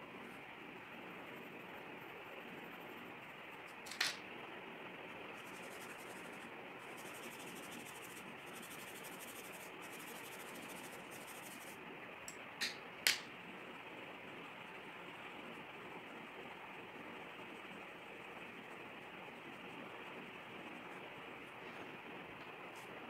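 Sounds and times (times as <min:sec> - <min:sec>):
pencil scratching on paper: 0:05.4 - 0:11.8.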